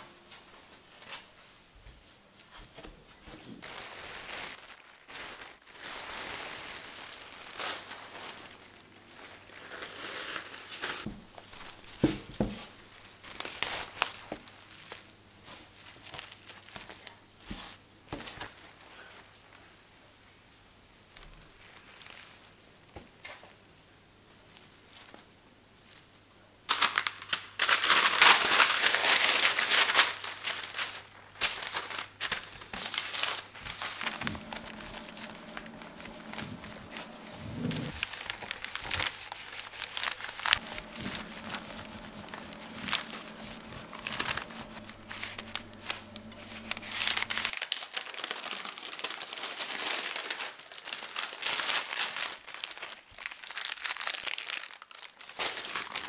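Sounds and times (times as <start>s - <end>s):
plastic film and paper crinkling: 2.4s - 19.6s, 20.9s - 23.5s, 24.3s - 56.0s.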